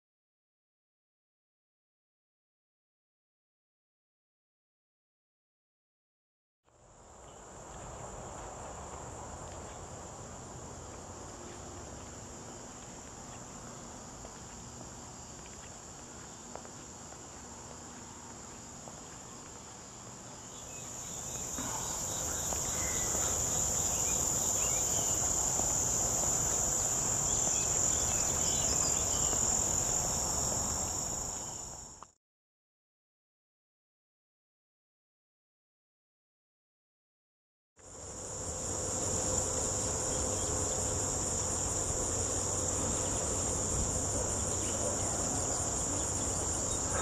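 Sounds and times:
insects chirring: 6.9s - 32.1s, 37.8s - 47.0s.

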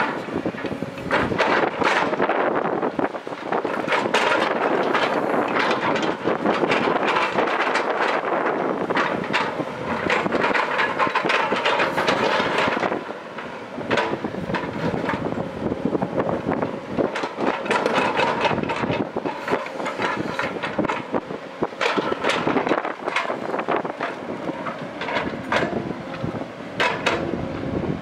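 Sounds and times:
excavator engine running: 0.0s - 28.0s.

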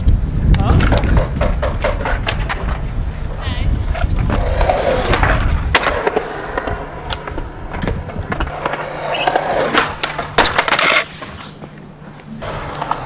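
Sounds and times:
skateboard wheels rolling on concrete: 0.0s - 13.0s
skateboard clacks: 0.4s - 11.8s, 12.4s - 13.0s.

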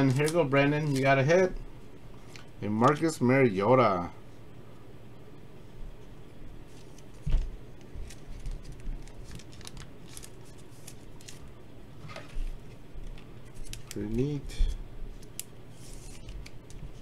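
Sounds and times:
cards rustling and scraping: 0.0s - 1.3s, 6.7s - 17.0s.

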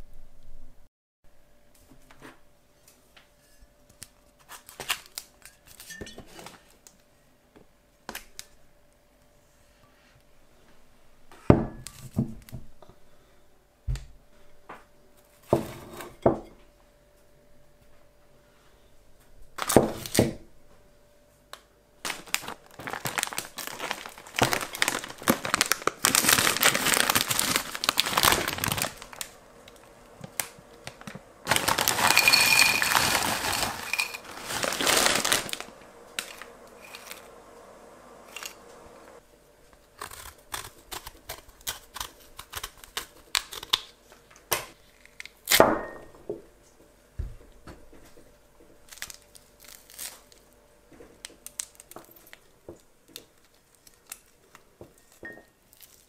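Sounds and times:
plastic packaging crinkling: 4.4s - 6.8s, 22.0s - 37.3s, 48.8s - 50.5s, 51.2s - 56.0s.

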